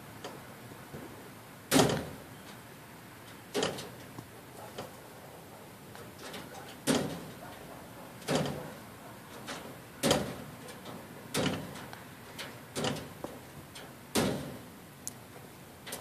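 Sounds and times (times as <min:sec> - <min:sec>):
window screen mesh rattling: 0:03.5 - 0:04.1, 0:06.1 - 0:14.7.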